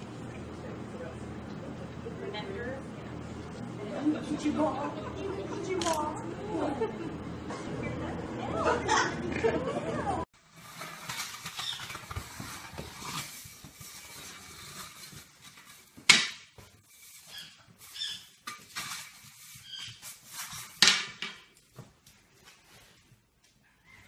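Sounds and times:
broom scraping wooden floor: 10.4 - 21.1
short high squeaks: 11.5 - 12.0, 17.2 - 18.4.

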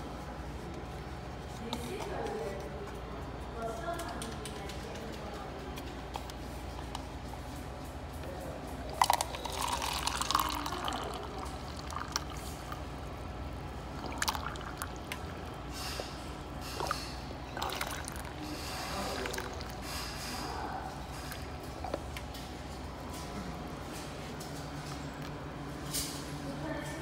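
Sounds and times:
liquid pouring into a cup: 8.9 - 13.1, 13.8 - 20.0.

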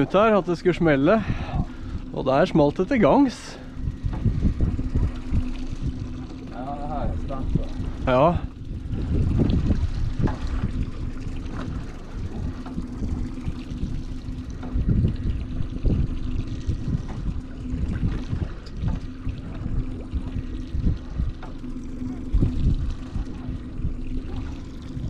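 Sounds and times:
outboard motor idling: 0.0 - 25.0
water sloshing against hull: 0.0 - 25.0
wind buffeting microphone: 0.0 - 25.0.

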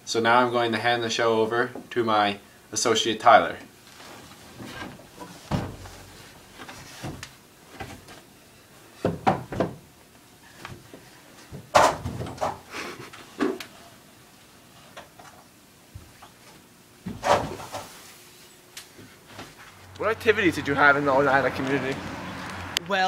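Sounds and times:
chair being moved: 17.0 - 18.1.

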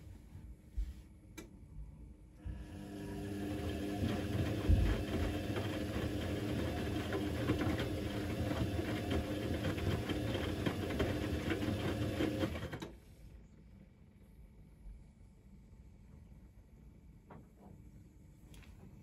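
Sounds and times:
washing machine motor hum: 1.8 - 13.0.

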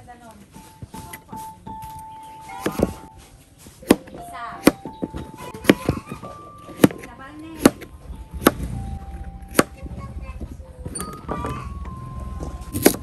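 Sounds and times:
knife chopping on plastic board: 2.6 - 3.0, 3.8 - 8.7, 12.7 - 13.0.

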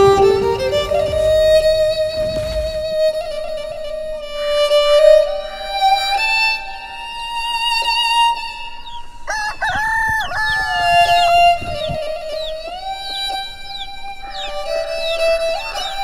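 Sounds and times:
music of long held notes: 0.0 - 9.2
rooster crowing: 9.3 - 11.3.

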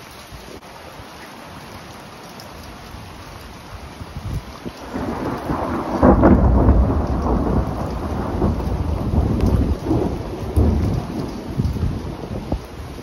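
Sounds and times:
steady rain: 0.0 - 13.0
thunder rumbling: 4.0 - 13.0.

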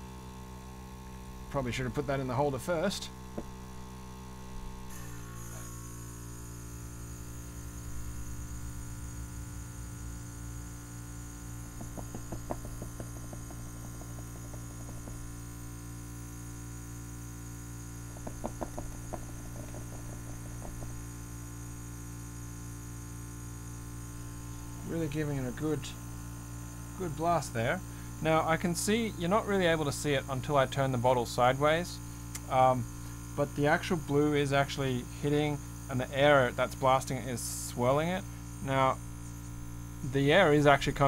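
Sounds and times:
airbrush compressor drone: 3.2 - 28.4.

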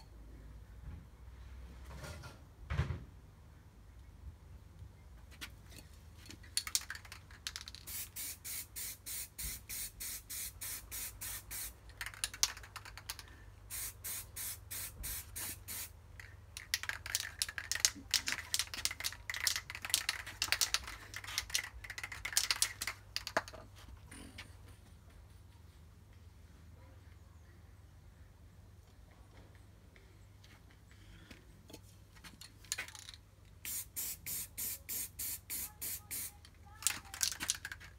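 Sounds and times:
aerosol can spraying: 7.8 - 12.6, 13.7 - 15.9, 33.6 - 36.4.

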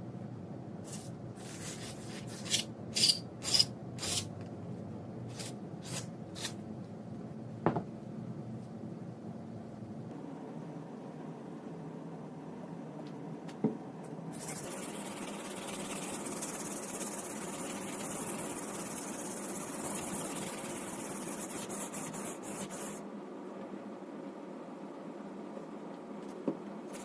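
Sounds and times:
knife scraping on sharpening stone: 2.4 - 4.3.

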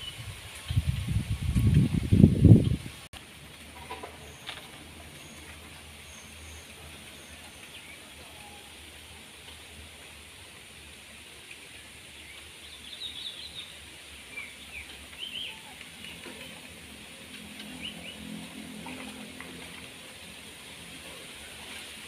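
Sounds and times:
steady outdoor hiss: 0.0 - 22.0
small birds chirping: 11.6 - 16.5.

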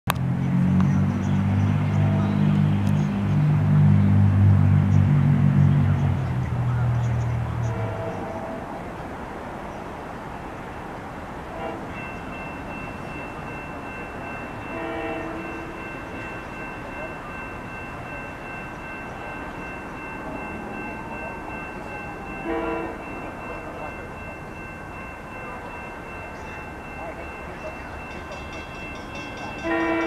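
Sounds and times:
train air horn blasts: 7.6 - 8.7, 11.5 - 12.0, 14.7 - 15.8, 22.4 - 23.2, 29.6 - 30.0.

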